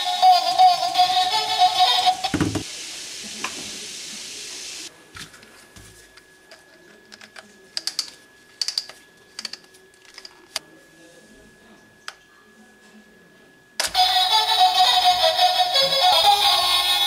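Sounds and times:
steady hiss: 0.8 - 4.9.

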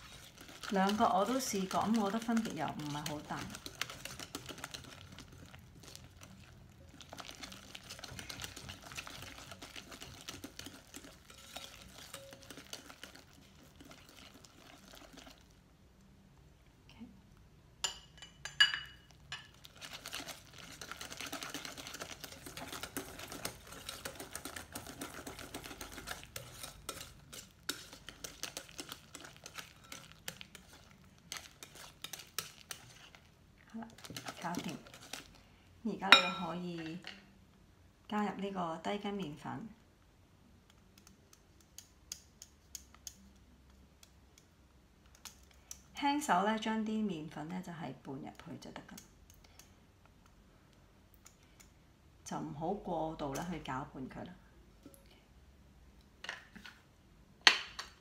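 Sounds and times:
whisk scraping glass bowl: 0.0 - 15.4, 19.8 - 33.3, 33.9 - 35.4.

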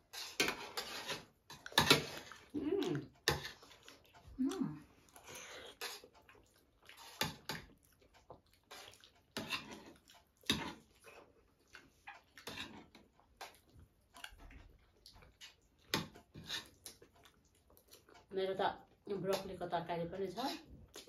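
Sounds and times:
chewing and slurping: 0.0 - 19.4, 20.4 - 21.0
spoons scraping metal plates: 0.1 - 3.6, 16.0 - 16.8.

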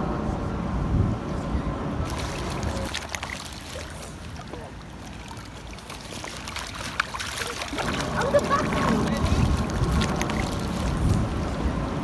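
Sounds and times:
water splashing and dripping: 2.1 - 11.5.

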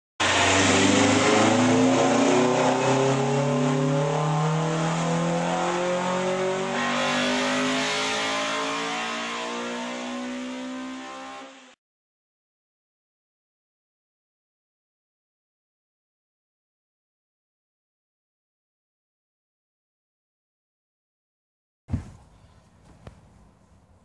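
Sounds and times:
car engine accelerating: 0.2 - 11.8.

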